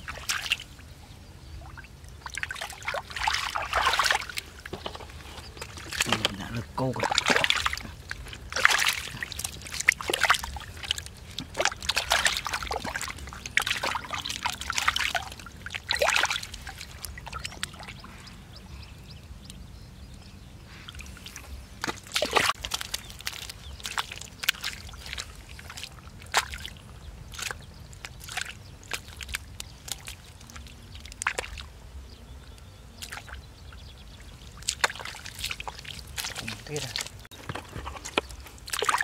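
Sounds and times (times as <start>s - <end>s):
hands splashing in muddy water: 0.0s - 0.7s, 2.2s - 18.1s, 20.9s - 31.7s, 33.0s - 33.4s, 34.4s - 37.3s, 38.0s - 39.0s.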